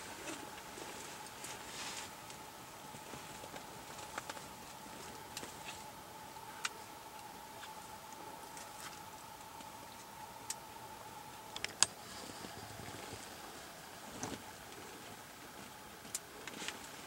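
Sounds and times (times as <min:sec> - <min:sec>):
faint high hum: 0:00.0 - 0:17.0
cluster of clicks: 0:11.5 - 0:12.0.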